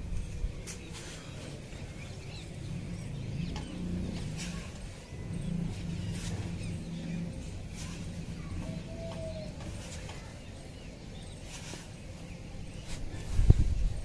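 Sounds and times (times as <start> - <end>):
faint birds chirping: 0.0 - 14.0
low steady rumble: 0.0 - 14.0.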